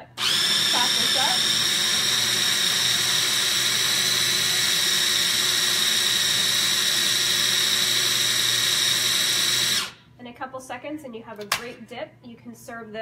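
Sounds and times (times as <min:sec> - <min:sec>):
food processor motor whining: 0:00.1 - 0:10.0.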